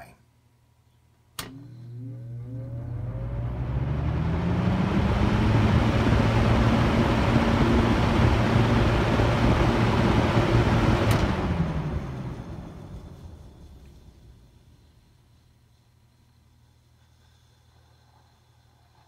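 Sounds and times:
fan switch click: 1.4s - 1.6s
box fan running: 1.4s - 18.8s.

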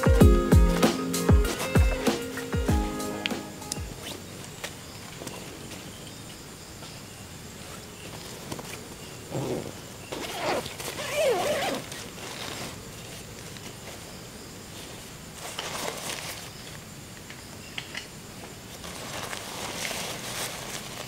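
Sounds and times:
night insects: 0.0s - 21.0s
fabric and plastic rustling: 7.6s - 14.1s, 14.7s - 16.9s, 18.4s - 21.0s.

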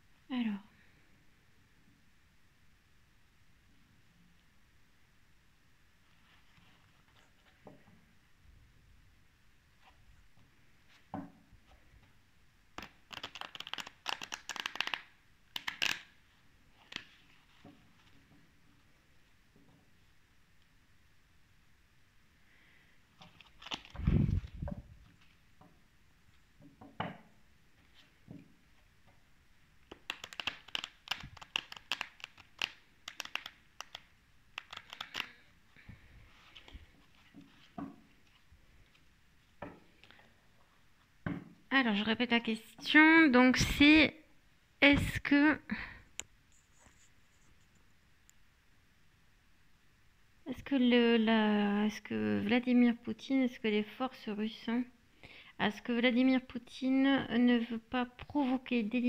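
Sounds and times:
cards shuffling: 12.8s - 18.2s, 23.2s - 25.4s, 29.8s - 35.5s.

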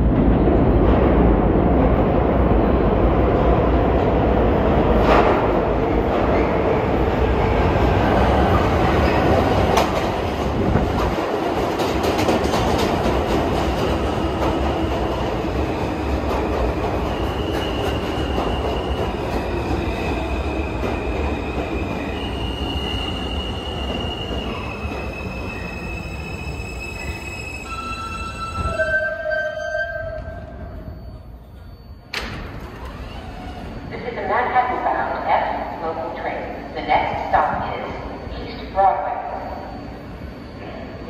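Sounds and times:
train wheel and rail rumble: 0.0s - 41.0s
high-pitched wheel squeal: 22.0s - 32.1s.

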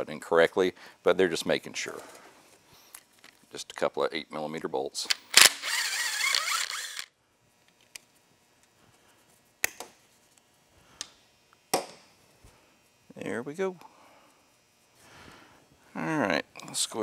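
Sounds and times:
ratchet wrench clicking: 5.1s - 7.1s.

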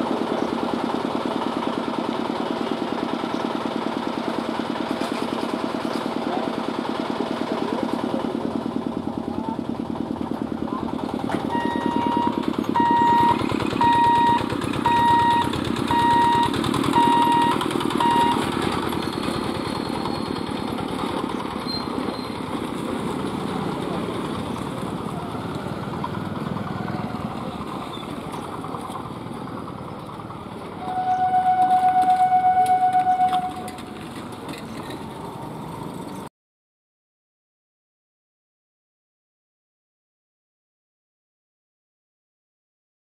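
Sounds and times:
bicycles crossing tracks: 0.0s - 36.3s
road traffic hum: 0.0s - 36.3s
electronic beep: 11.5s - 18.4s, 30.8s - 33.7s.

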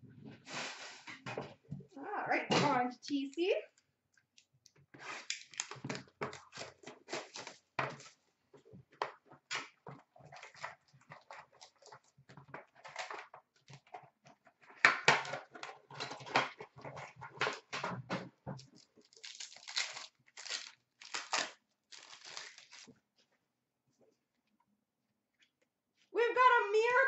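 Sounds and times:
plastic wrapping crackling: 5.1s - 8.2s, 18.6s - 22.9s.

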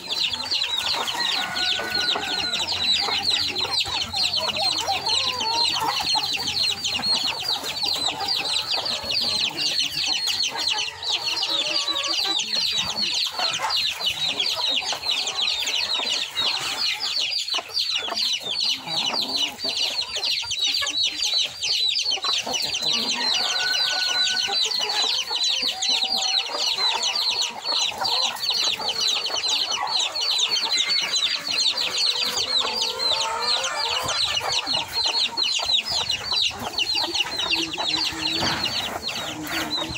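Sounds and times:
chickens clucking: 0.0s - 39.9s.

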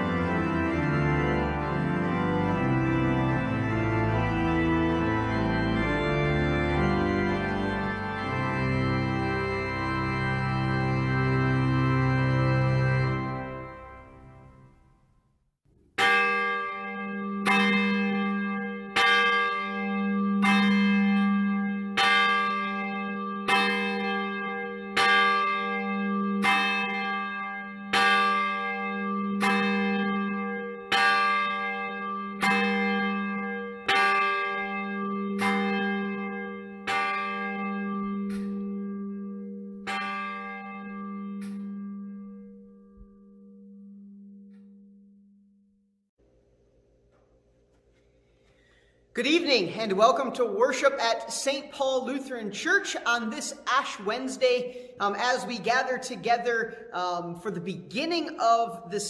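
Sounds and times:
church bell tolling: 0.0s - 14.9s, 16.0s - 45.5s, 48.6s - 59.0s.

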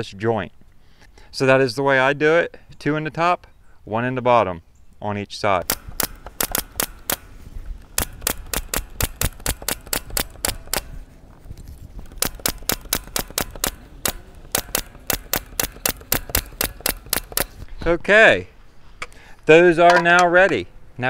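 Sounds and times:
pneumatic nailer firing into wood: 5.6s - 11.0s, 12.0s - 17.7s.

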